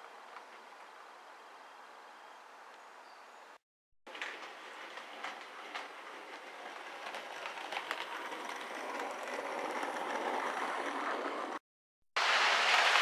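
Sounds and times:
model train running on track: 0:04.2 - 0:11.6.

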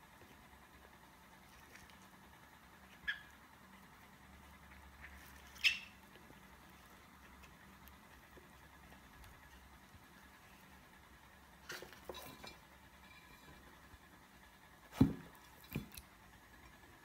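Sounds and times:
frog squeaking: 0:05.5 - 0:06.0.

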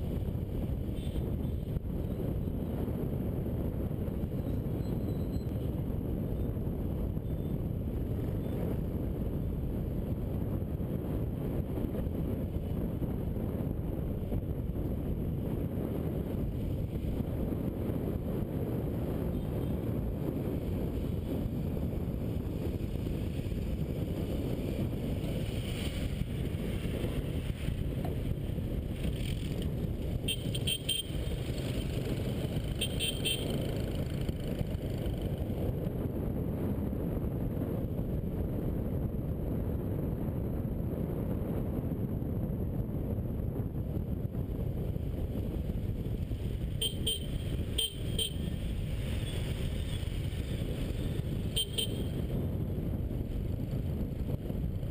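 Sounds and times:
motorbike engine rumble: 0:00.0 - 0:54.9
short horn beeps: 0:30.3 - 0:31.2, 0:32.8 - 0:33.5, 0:46.8 - 0:48.5, 0:51.6 - 0:52.1.

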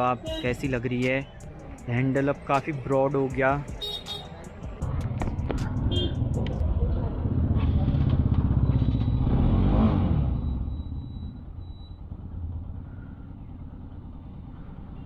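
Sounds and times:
street background: 0:00.0 - 0:15.0
vehicle engine passing close: 0:04.9 - 0:15.0.

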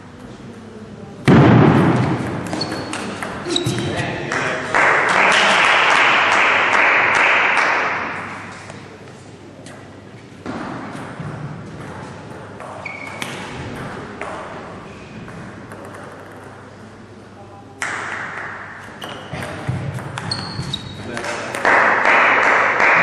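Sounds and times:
table tennis ball bouncing: 0:01.3 - 0:03.9, 0:15.2 - 0:16.7, 0:17.8 - 0:23.0.

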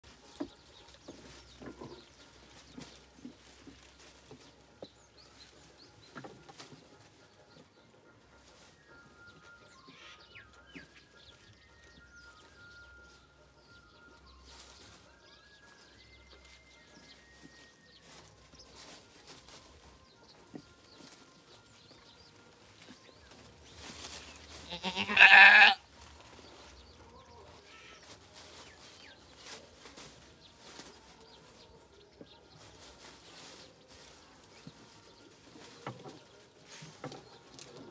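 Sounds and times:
small birds chirping: 0:00.0 - 0:37.9
goat bleating: 0:24.6 - 0:25.8.

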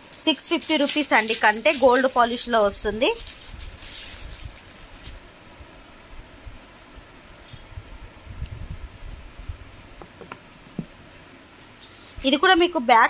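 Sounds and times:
low handling bumps: 0:07.5 - 0:11.1.

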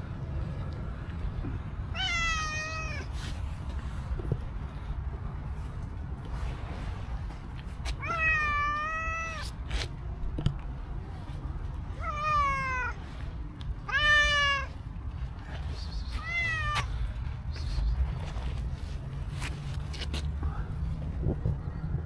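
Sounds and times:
cat meowing: 0:01.9 - 0:03.1, 0:08.0 - 0:09.5, 0:12.0 - 0:13.0, 0:13.8 - 0:14.8, 0:16.2 - 0:16.9.

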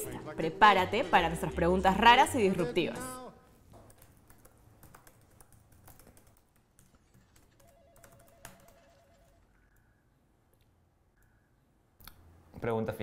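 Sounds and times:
laptop keyboard typing: 0:03.7 - 0:09.9.

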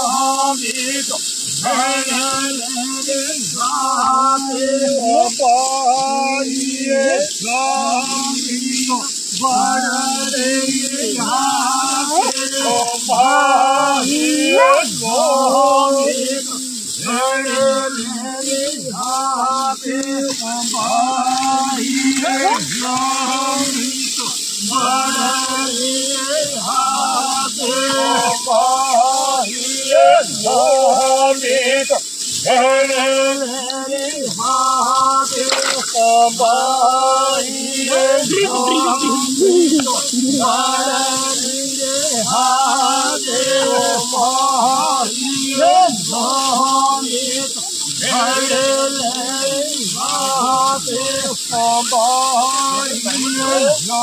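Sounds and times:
man singing: 0:00.0 - 0:54.0
person singing held phrases: 0:20.4 - 0:25.0, 0:37.5 - 0:40.8.

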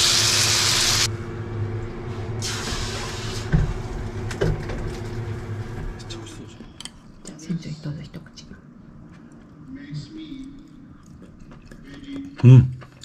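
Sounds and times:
meat sizzling in a frying pan: 0:00.0 - 0:01.1.

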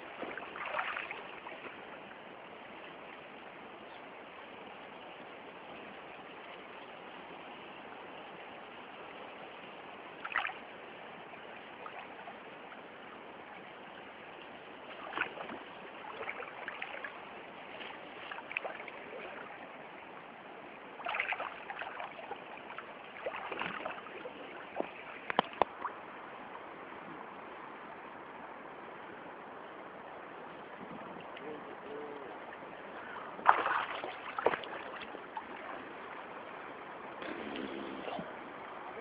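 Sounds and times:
water splashing around person: 0:00.0 - 0:02.0, 0:10.2 - 0:10.7, 0:14.8 - 0:19.7, 0:21.0 - 0:26.0, 0:32.7 - 0:39.0
river current rushing: 0:00.0 - 0:39.0.

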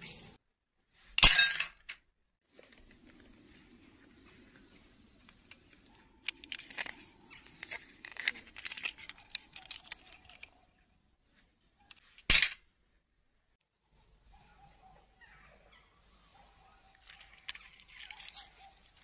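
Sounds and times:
plastic clicks and crackles: 0:05.2 - 0:10.7, 0:16.9 - 0:19.0.

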